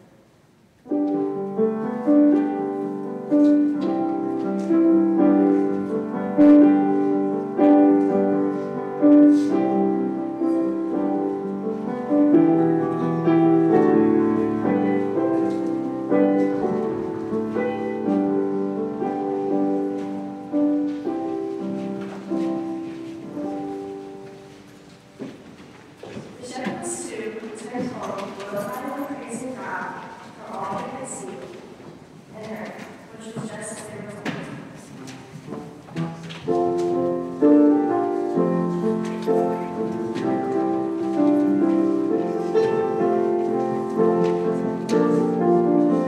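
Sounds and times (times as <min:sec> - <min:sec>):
slow piano chords: 0:00.0 - 0:46.0.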